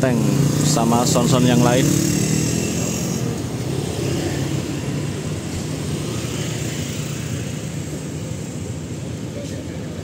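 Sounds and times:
street noise: 0.0s - 10.0s.

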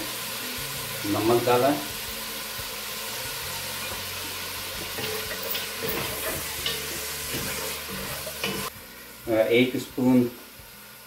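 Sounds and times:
meat sizzling in a pot: 0.0s - 11.0s
spoon stirring and scraping: 4.8s - 8.7s.

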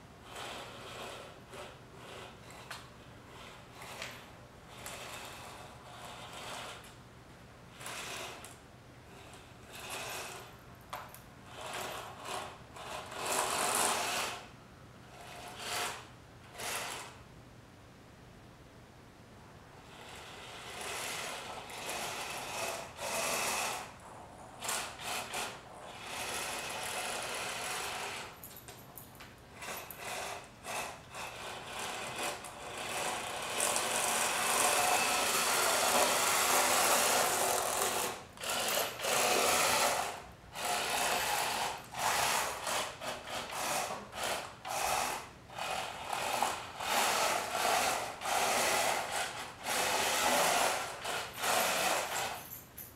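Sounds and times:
toy car electric motors whirring: 4.8s - 7.0s, 7.7s - 8.6s, 9.2s - 10.5s, 11.5s - 14.5s, 15.2s - 17.2s, 19.9s - 24.0s, 24.6s - 28.4s, 29.6s - 52.6s.

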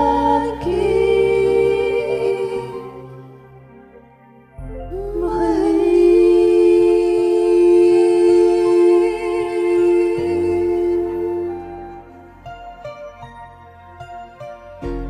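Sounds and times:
person singing long note: 4.6s - 12.5s
karaoke backing track: 4.6s - 15.0s.

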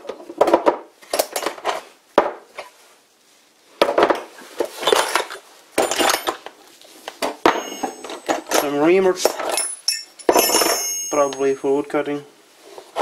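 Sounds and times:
metal parts clinking and clattering: 4.9s - 6.5s, 7.5s - 11.6s
bright metallic ringing: 7.5s - 8.9s, 9.6s - 12.0s.

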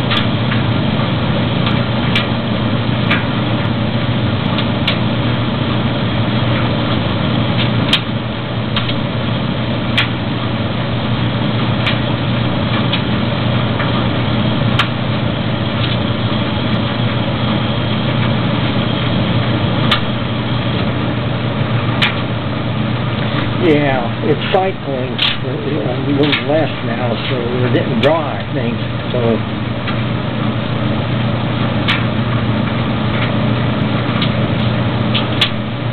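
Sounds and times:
dryer humming: 0.0s - 35.9s
sharp clicks: 26.2s - 26.5s.

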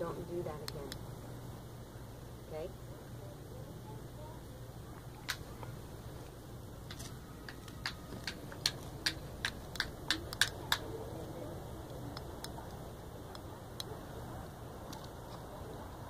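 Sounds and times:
puppy claws clicking on concrete: 6.9s - 10.9s.

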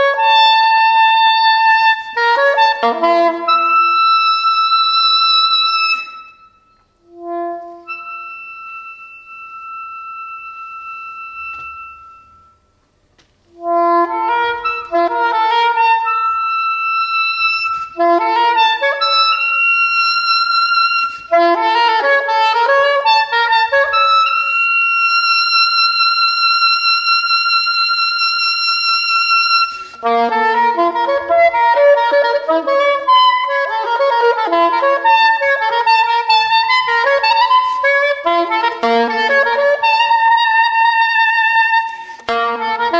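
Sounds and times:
soprano saxophone solo: 0.0s - 12.7s, 13.5s - 42.9s.

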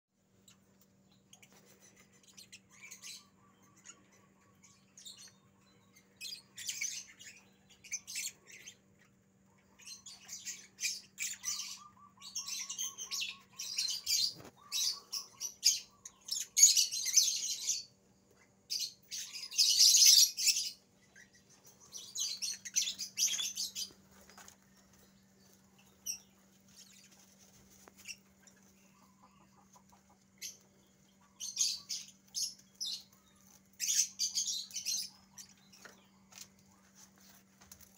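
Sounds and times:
rabbits rustling and tearing leaves: 21.8s - 37.9s.

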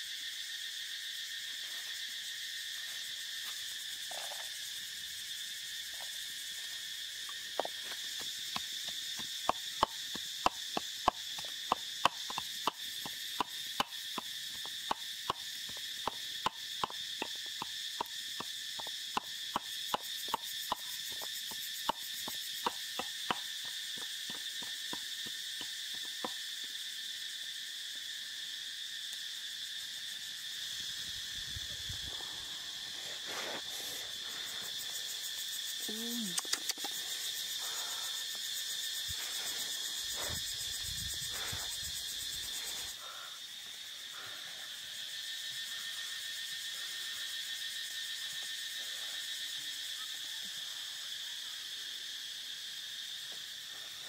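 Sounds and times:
high-pitched insect chorus: 0.0s - 54.0s.

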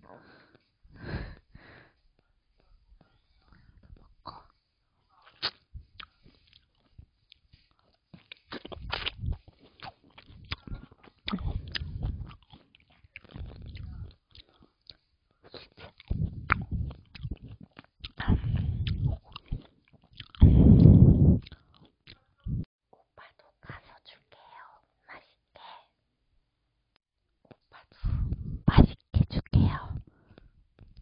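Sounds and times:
biting and wet chewing: 5.2s - 22.4s
sharp mouth clicks: 8.2s - 12.6s, 15.8s - 22.2s.

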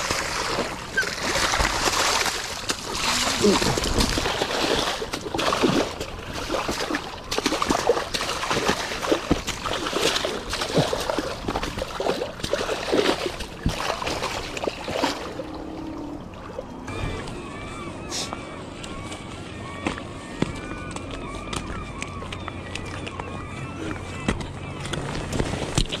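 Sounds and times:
fish thrashing in water: 0.0s - 16.6s
person wading in water: 0.0s - 18.3s
water splashing and sloshing: 0.0s - 26.0s.

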